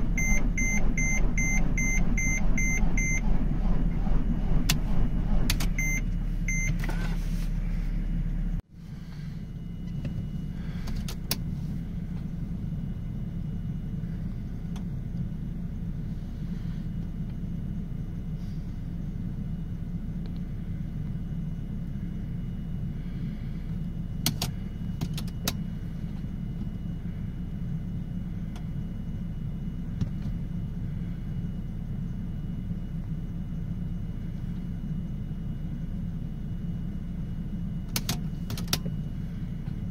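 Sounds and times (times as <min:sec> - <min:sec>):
dashboard warning beeps: 0:00.0 - 0:03.7, 0:04.6 - 0:07.2
engine cranking on starter: 0:00.0 - 0:07.2
steady low hum: 0:00.0 - 0:39.9.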